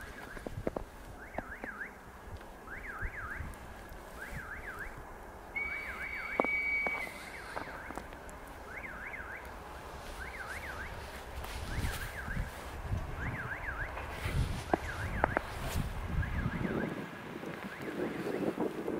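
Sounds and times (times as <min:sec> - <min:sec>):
steady high whistle: 0:02.7 - 0:03.5, 0:04.2 - 0:08.0, 0:10.1 - 0:11.0, 0:11.6 - 0:12.5, 0:13.2 - 0:14.0, 0:14.6 - 0:15.5, 0:16.1 - 0:17.0.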